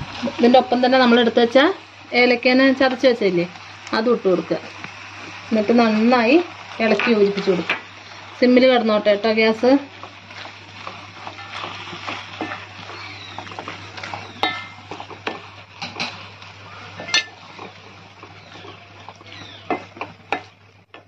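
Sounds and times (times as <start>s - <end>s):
wooden spatula scraping a pan: 5.2s - 21.0s.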